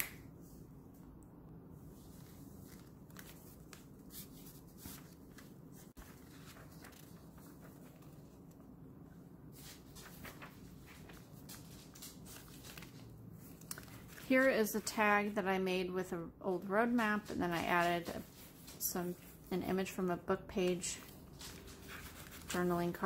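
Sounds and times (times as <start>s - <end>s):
paper pages rustling: 1.9s - 8.7s, 9.5s - 15.3s, 17.0s - 19.5s, 20.6s - 23.0s.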